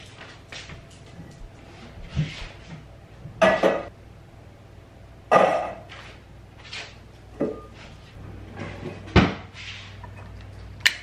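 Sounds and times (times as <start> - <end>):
kitchen knocks and clunks: 2.1 - 3.9, 7.4 - 7.7, 8.6 - 9.5.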